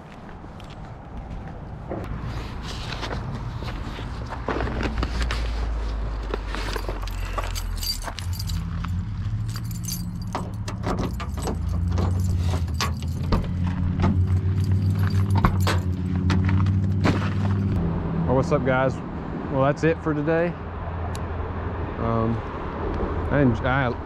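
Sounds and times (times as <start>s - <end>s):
keys jangling: 6.7s - 16.4s
truck door opening: 9.8s - 17.6s.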